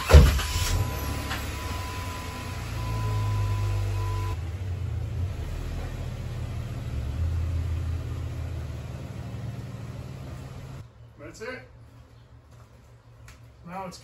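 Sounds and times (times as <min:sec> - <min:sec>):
engine running at low speed: 0:00.1 - 0:10.8.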